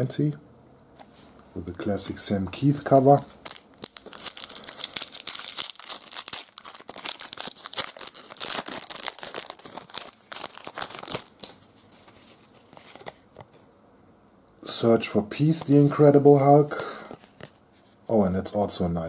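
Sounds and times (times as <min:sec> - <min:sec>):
foil wrapper being torn and crinkled: 0:03.2 - 0:11.6.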